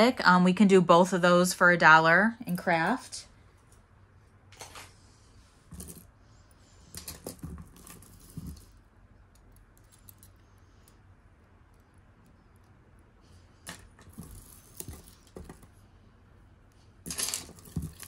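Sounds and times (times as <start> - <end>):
metal jewelry clinking: 5.7 - 6.1, 6.8 - 11.0, 13.6 - 15.8, 17.0 - 18.0.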